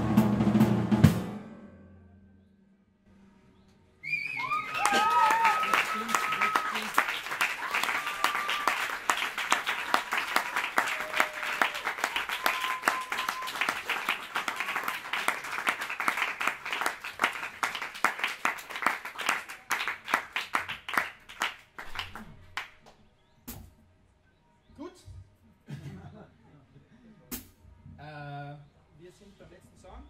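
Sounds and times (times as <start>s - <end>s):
audience applause: 4.2s - 22.7s.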